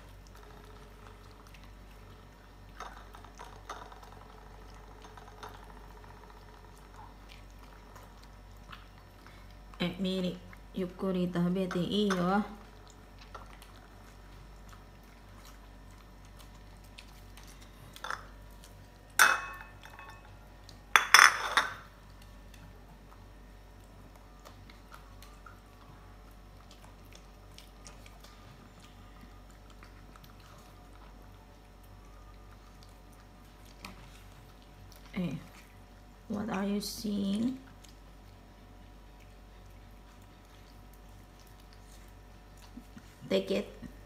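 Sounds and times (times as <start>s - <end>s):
dogs eating: 0.0s - 44.0s
plates clattering: 19.2s - 20.2s, 21.0s - 21.8s.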